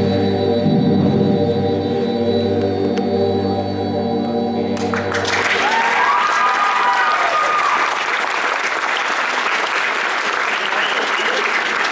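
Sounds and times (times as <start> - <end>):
held organ chord: 0.0 - 5.6
audience applause: 4.8 - 11.9
long whoop: 5.5 - 8.0.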